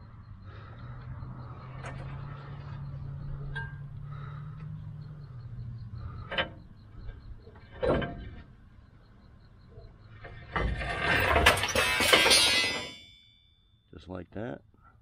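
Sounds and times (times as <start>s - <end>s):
metal axle clanking: 0.8s - 9.0s, 9.7s - 13.4s.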